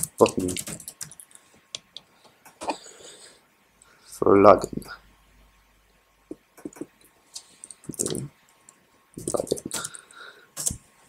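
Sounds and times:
keyboard typing: 0.0s - 1.9s, 6.6s - 10.8s.

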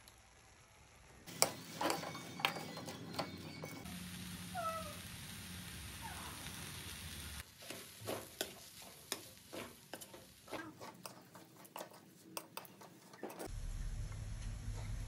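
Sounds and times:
metal spoon scraping a wok: 1.3s - 3.9s, 7.6s - 13.5s
steady hum: 13.5s - 15.0s.

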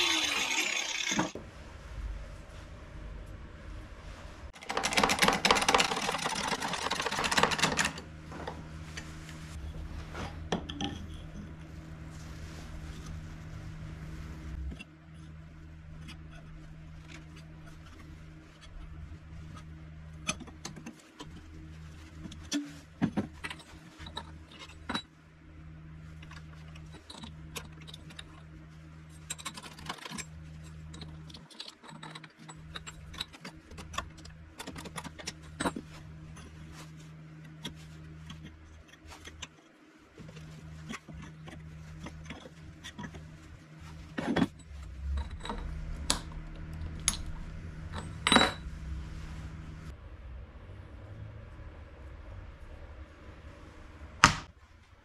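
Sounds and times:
steady low hum: 0.0s - 55.0s
metal parts and tools clinking: 29.2s - 36.5s, 44.1s - 48.7s.

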